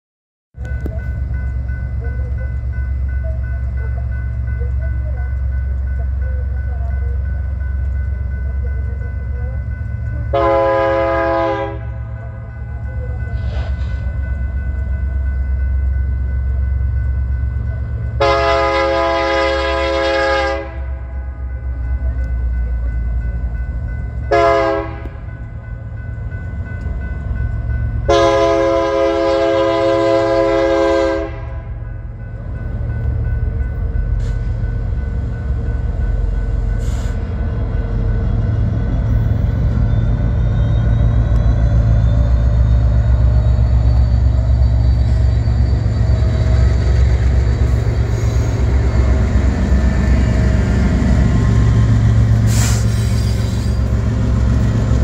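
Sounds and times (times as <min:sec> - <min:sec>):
crossing warning bell ringing: 0:00.6 - 0:55.0
locomotive air horn blasts: 0:10.3 - 0:12.0, 0:18.2 - 0:21.4, 0:24.3 - 0:25.2, 0:28.1 - 0:31.8.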